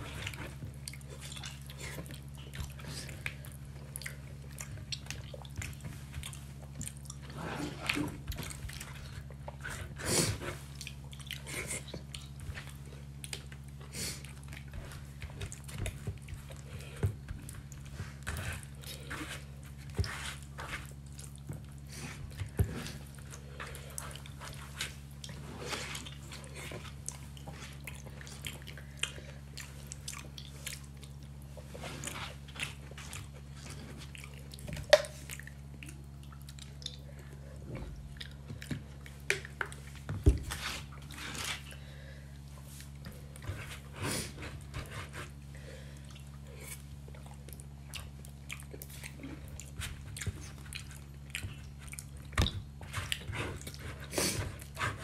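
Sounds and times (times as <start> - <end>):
person chewing with mouth smacks: 0.0 - 41.8, 42.4 - 55.0
food crunching: 46.0 - 54.8.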